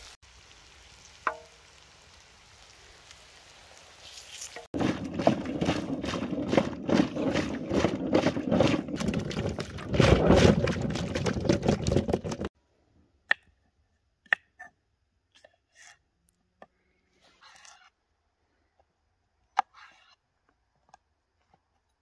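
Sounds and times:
water splashing in metal bowl: 4.4 - 12.5.

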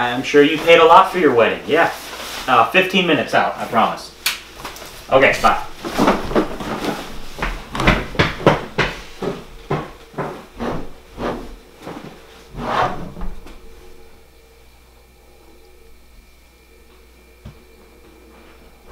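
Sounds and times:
knocks and thuds: 5.7 - 11.3.

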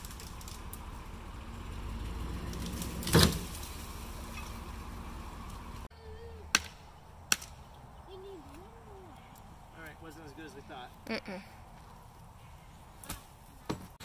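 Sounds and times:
loud crackle: 0.0 - 1.7, 2.5 - 4.8
truck engine rumble: 0.0 - 10.1.

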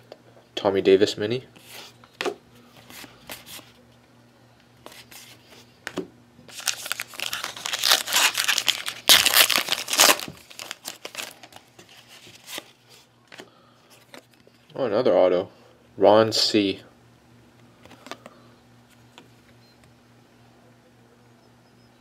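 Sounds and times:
wrapper tearing and crinkling: 6.5 - 12.7.

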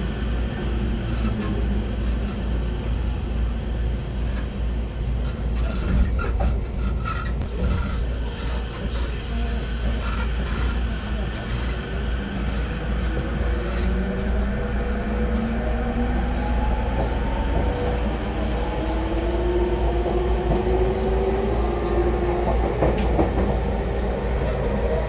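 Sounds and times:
train wheels rumbling on rail: 0.0 - 25.0
rail-joint clicks: 21.8 - 23.6.

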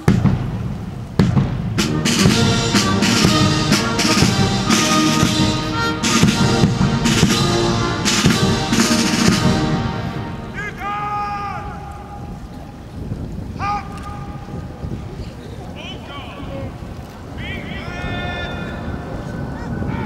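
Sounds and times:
bass drum beat: 0.0 - 10.5
military band playing march: 0.0 - 12.1.

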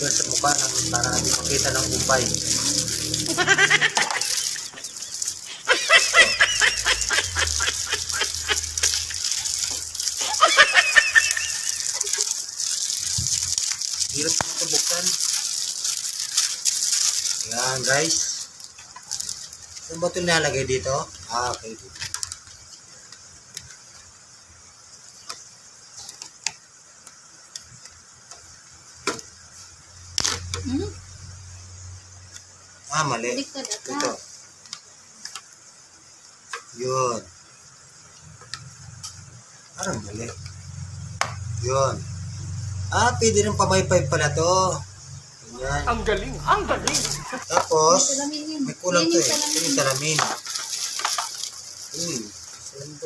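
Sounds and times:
plastic wrapping crinkling: 0.0 - 23.9, 45.9 - 47.7, 49.0 - 53.0
person laughing: 3.1 - 9.4, 10.2 - 12.4.

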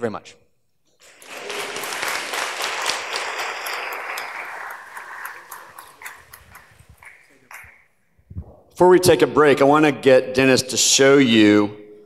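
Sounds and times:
audience applauding: 1.0 - 7.9.

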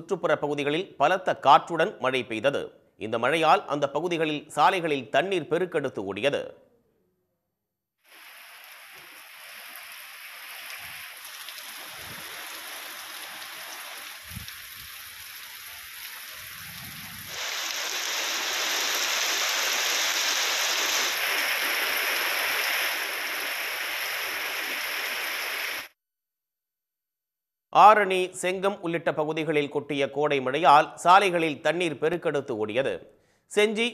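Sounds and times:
heavy rain pouring: 8.1 - 25.9.

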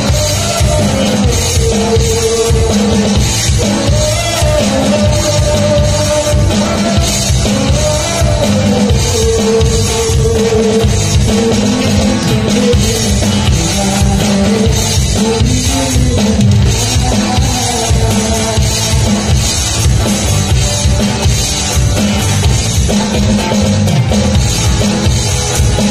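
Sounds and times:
man singing into a microphone: 0.0 - 19.8
drum kit beat: 0.0 - 25.9.

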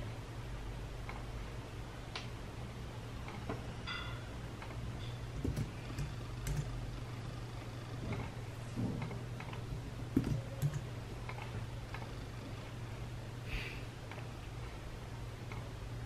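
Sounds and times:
steady low hum: 0.0 - 16.0
hands tapping desk and keyboard: 5.4 - 6.7, 10.1 - 10.9.

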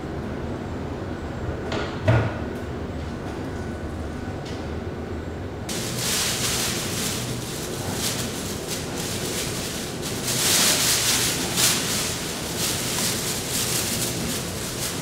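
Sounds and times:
plastic bag rustling: 5.7 - 15.0.

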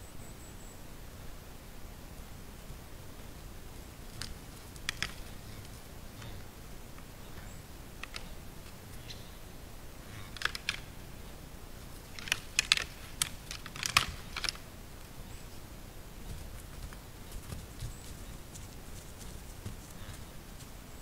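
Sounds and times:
faint steady hiss: 0.0 - 21.0
antlers clacking together: 4.1 - 6.4, 7.4 - 8.4, 10.1 - 11.0, 12.1 - 14.6.

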